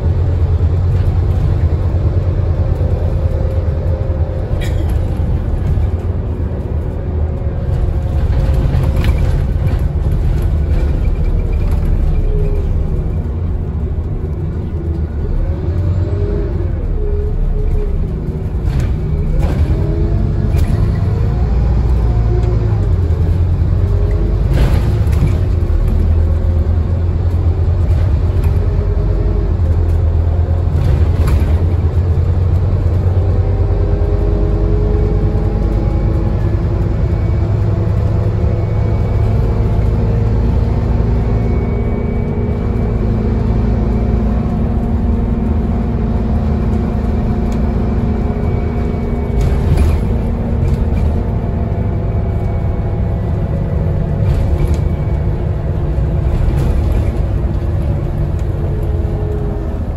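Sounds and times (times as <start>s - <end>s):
bus diesel engine rumbling: 0.0s - 59.9s
bus body knocking over bumps: 4.4s - 14.4s, 23.0s - 33.3s, 44.6s - 59.9s.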